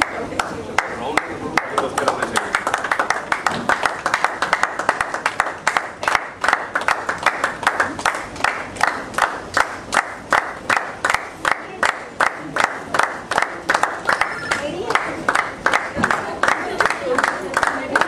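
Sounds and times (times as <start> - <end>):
crowd chatter: 0.0 - 2.6, 11.3 - 18.0
crowd clapping in rhythm: 0.0 - 18.0.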